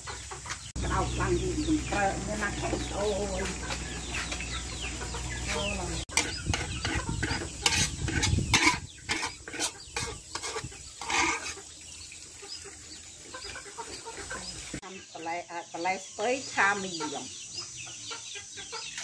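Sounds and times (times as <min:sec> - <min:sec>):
chickens clucking: 0:00.0 - 0:19.0
spatula scraping a wok: 0:01.3 - 0:11.8.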